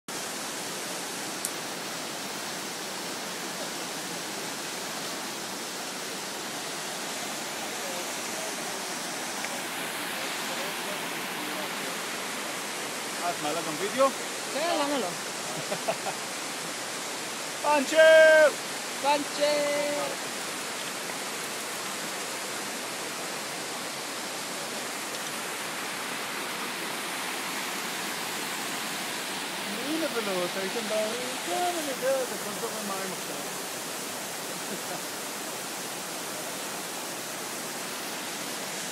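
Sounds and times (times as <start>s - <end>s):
stream rushing over rocks: 0.1s - 38.9s.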